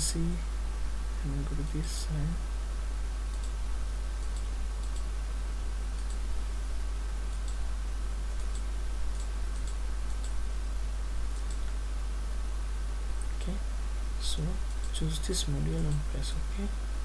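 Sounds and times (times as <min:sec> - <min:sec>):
faint recording hiss: 0:00.0 - 0:17.0
low electrical hum: 0:00.0 - 0:17.0
computer mouse clicking: 0:03.3 - 0:03.6, 0:04.2 - 0:05.1, 0:05.9 - 0:06.2, 0:07.3 - 0:07.6, 0:08.4 - 0:10.4, 0:11.3 - 0:11.8.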